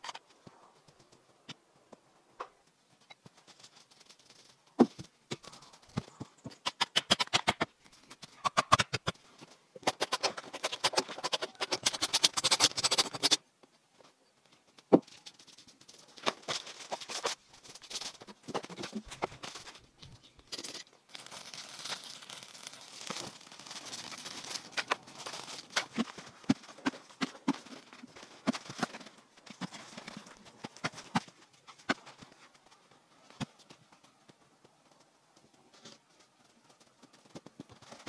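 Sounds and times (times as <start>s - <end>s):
footsteps on dry leaves: 21.1s - 26.4s.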